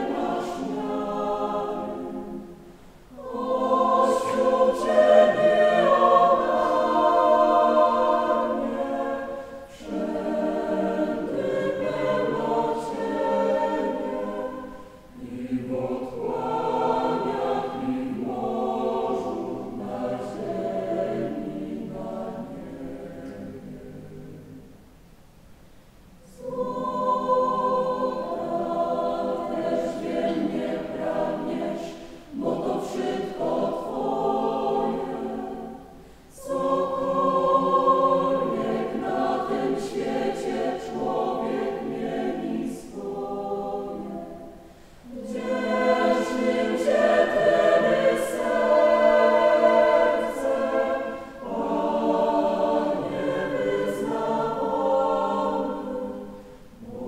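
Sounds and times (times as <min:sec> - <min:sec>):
mixed choir singing unaccompanied: 0:00.0 - 0:24.9, 0:26.1 - 0:57.0
singers breathing: 0:32.0 - 0:32.3, 0:35.9 - 0:36.4, 0:44.5 - 0:45.2, 0:51.1 - 0:51.4, 0:56.3 - 0:56.8.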